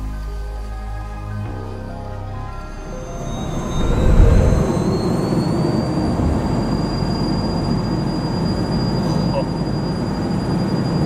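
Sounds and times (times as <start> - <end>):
jet engines spooling up: 2.7 - 11.0.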